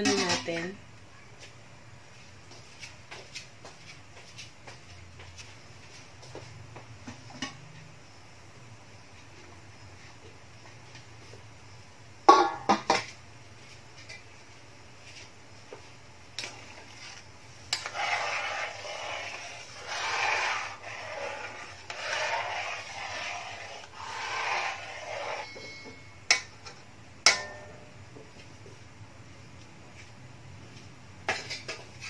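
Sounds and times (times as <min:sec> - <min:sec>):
ladle scraping metal pan: 0:16.4 - 0:26.5.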